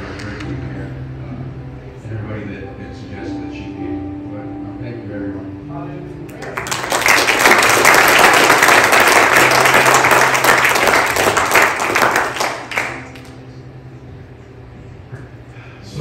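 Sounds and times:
congregation applauding: 6.3 - 13.4.

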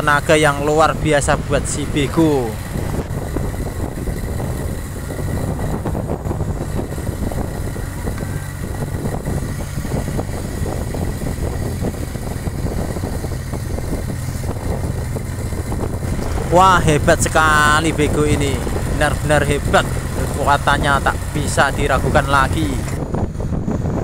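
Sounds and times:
excavator diesel engine under load: 0.0 - 24.0.

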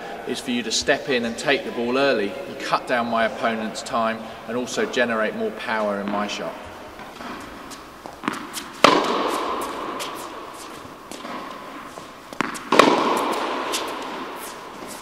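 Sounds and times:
racket striking tennis ball: 7.0 - 15.0.

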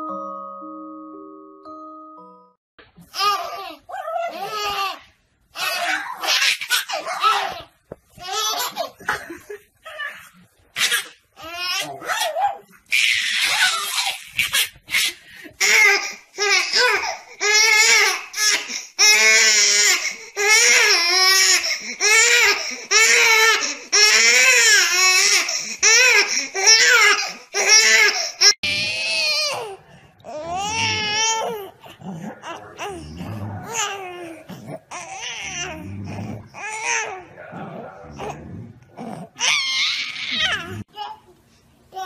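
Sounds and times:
baby crying: 5.6 - 8.9, 15.6 - 37.4, 39.1 - 41.2.

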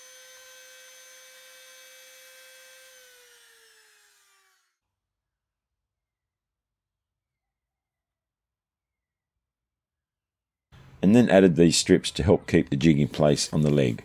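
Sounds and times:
electric router motor whining: 0.0 - 4.8.

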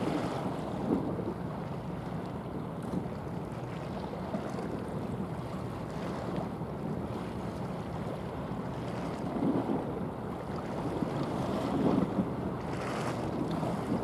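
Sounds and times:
wind noise on microphone: 0.0 - 1.5, 8.9 - 14.0
water washing along ship hull: 0.0 - 14.0.

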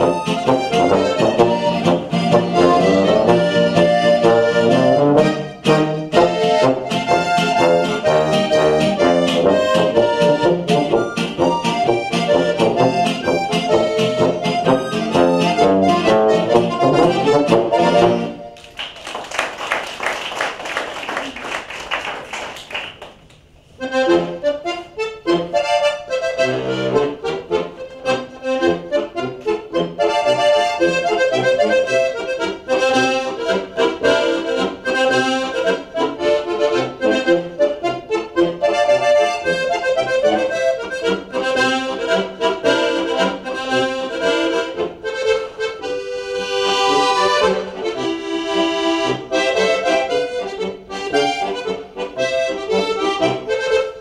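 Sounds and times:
accordion playing folk tune: 0.0 - 18.6, 23.6 - 54.0
people applauding: 18.6 - 23.5.

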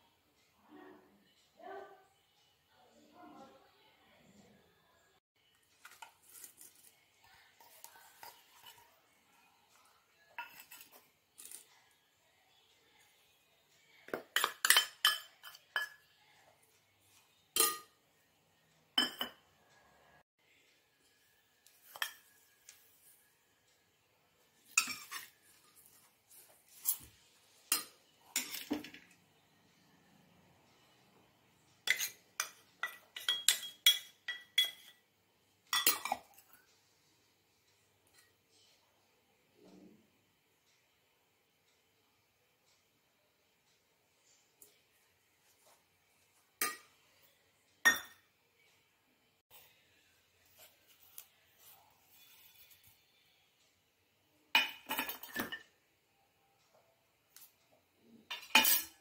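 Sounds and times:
leaves rustling into a bowl: 5.8 - 6.9
spoon scraping metal bowl: 7.6 - 9.0, 10.4 - 11.7, 24.7 - 27.1, 31.8 - 35.0.

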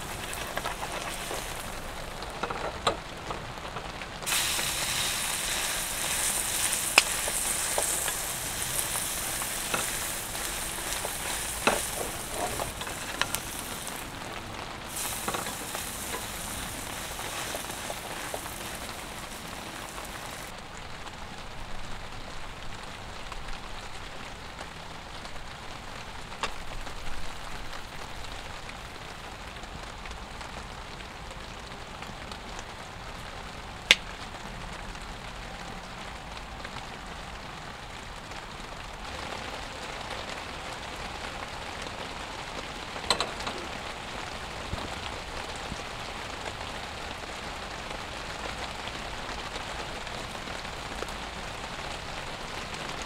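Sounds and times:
sharp clicks and knocks: 0.0 - 3.9
steady rain: 0.0 - 53.0.

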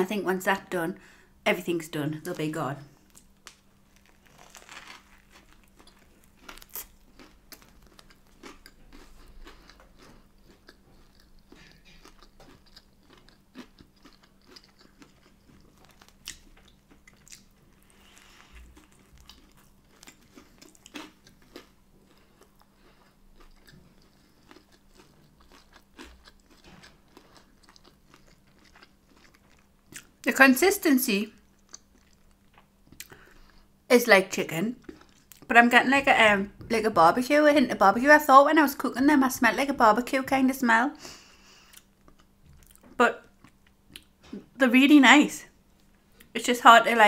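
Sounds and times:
small crunches: 3.0 - 30.1
person chewing food: 3.0 - 30.2, 31.4 - 33.8, 34.8 - 35.5, 41.1 - 44.4.

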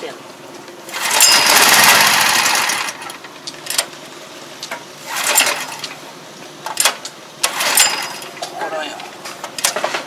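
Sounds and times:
engine turning over: 0.8 - 3.9, 5.0 - 6.0, 6.7 - 8.4
recoil starter pull: 0.9 - 3.8, 5.0 - 5.9, 6.8 - 8.3.

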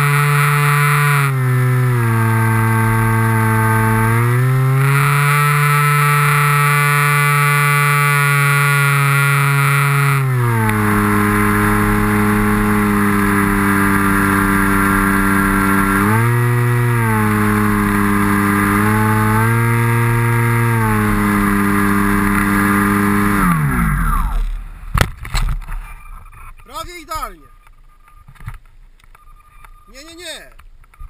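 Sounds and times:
model plane motor whining: 0.0 - 24.6.

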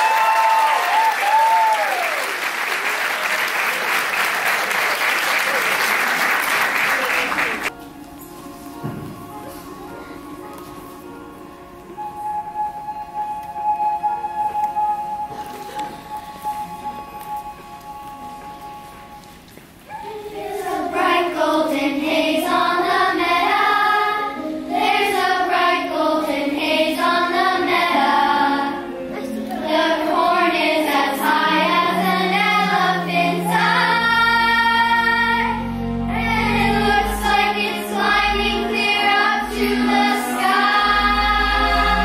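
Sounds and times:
children's choir singing: 19.9 - 42.0
instrumental accompaniment with bass: 32.3 - 42.0.

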